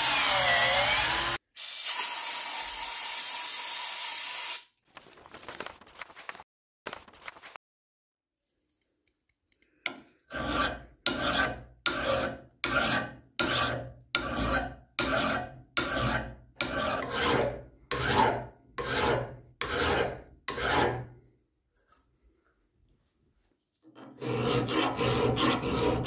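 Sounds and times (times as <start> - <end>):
file rasping on metal: 9.9 - 21.1, 24.0 - 26.0.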